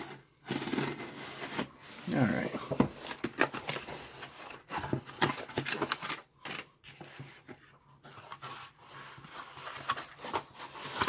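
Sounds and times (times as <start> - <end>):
cardboard box scraping and rustling: 0.0 - 5.6.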